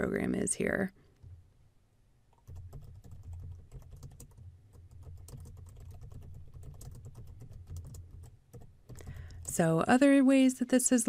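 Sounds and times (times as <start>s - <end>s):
typing on computer keyboard: 2.4s - 9.6s.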